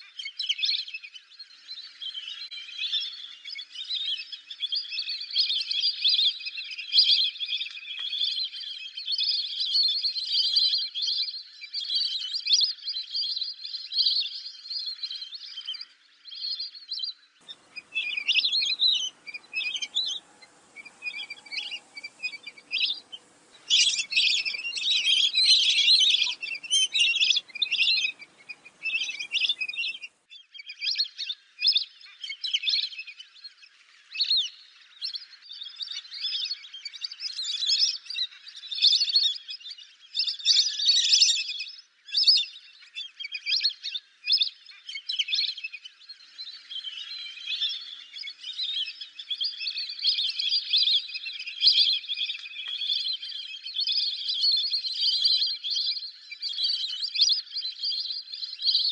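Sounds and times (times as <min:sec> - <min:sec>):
ducks whistling: 0:17.4 - 0:30.2
low background hiss: 0:17.4 - 0:30.2.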